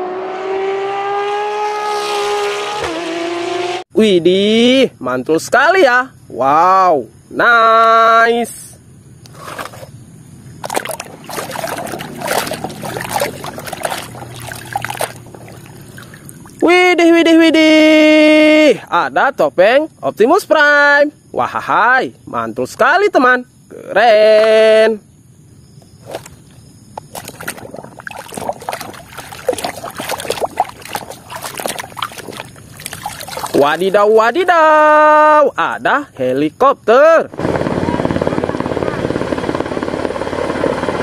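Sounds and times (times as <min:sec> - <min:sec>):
water sloshing and splashing: 0:10.6 - 0:16.7, 0:25.8 - 0:34.3.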